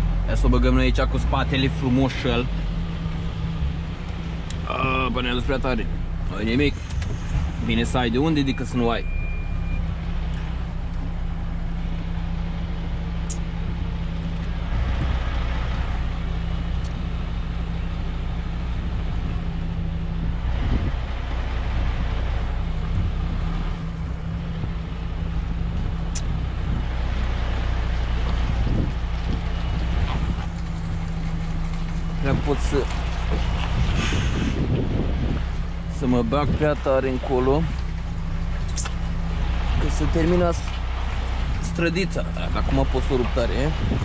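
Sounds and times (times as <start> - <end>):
diesel engine running at low revs: 0.0 - 44.0.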